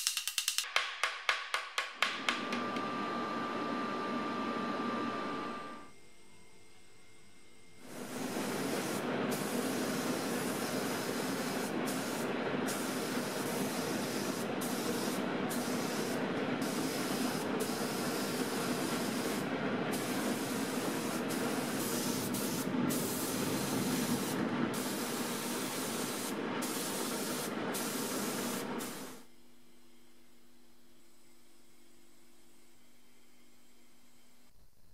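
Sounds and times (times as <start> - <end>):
spray gun hissing: 7.8 - 29.2.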